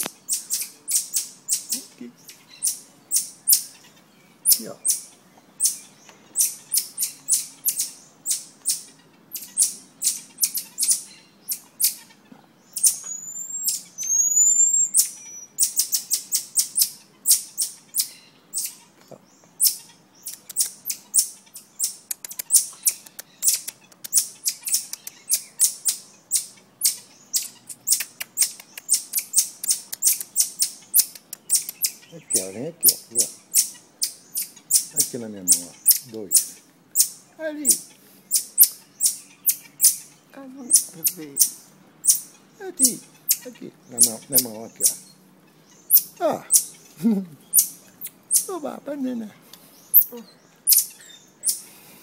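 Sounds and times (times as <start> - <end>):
marmosets chirping: 0.0 - 52.0
short rising whistles: 13.0 - 14.9.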